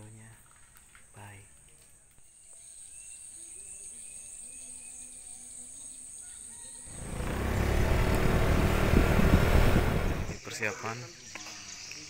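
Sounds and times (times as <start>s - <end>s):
loud low rushing noise: 6.9s - 10.3s
insects chirring: 6.9s - 12.0s.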